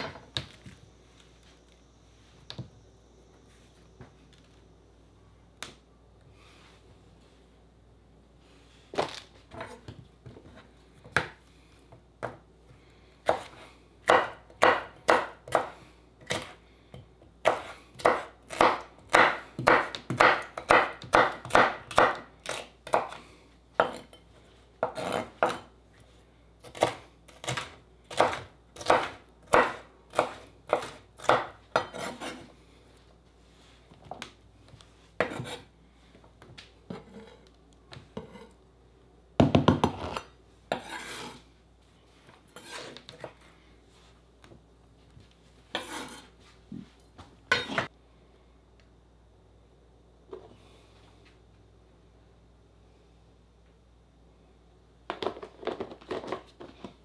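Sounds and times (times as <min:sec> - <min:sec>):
knife chopping on cutting board: 0:13.3 - 0:15.7, 0:17.4 - 0:23.2, 0:26.7 - 0:32.5, 0:35.2 - 0:35.7.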